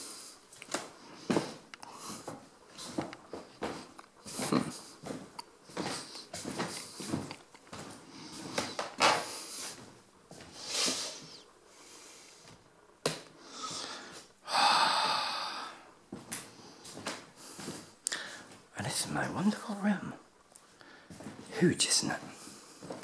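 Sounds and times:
person breathing close to microphone: 0:00.0 - 0:03.0, 0:10.5 - 0:12.6, 0:13.3 - 0:18.6.

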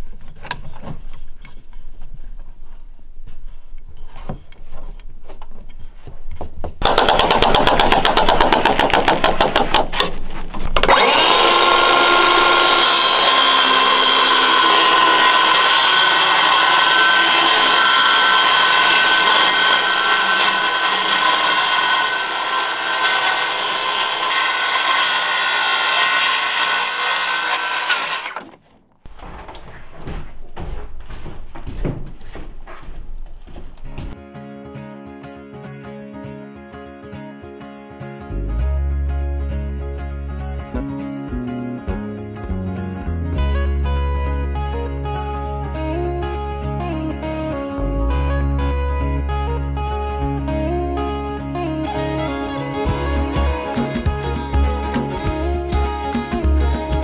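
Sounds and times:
circular saw cutting: 0:06.8 - 0:10.0, 0:10.8 - 0:28.6, 0:51.9 - 0:57.0.

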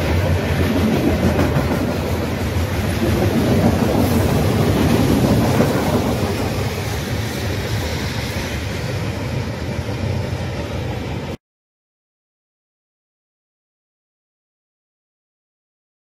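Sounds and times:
freight train wheels on rails: 0:00.0 - 0:11.4.

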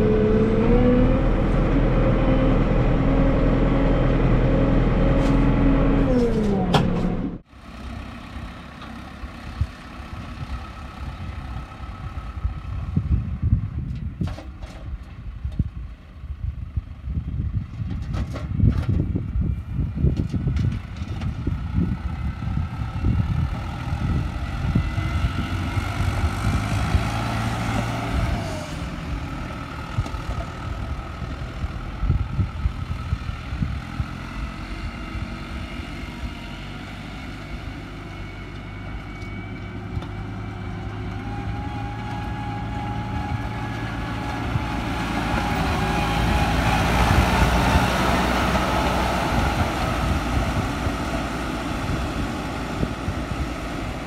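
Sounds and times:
tractor diesel engine running: 0:00.0 - 0:54.0
blade dragging through dry soil: 0:05.0 - 0:07.2.

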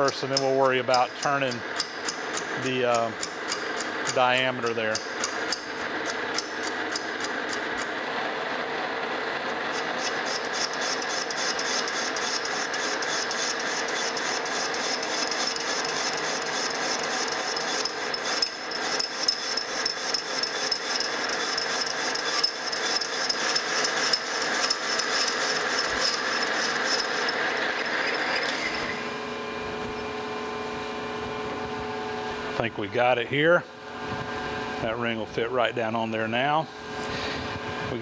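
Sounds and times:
cutting tool rhythmic ticking: 0:00.0 - 0:07.9, 0:09.7 - 0:27.5
metal lathe running: 0:00.0 - 0:31.4.

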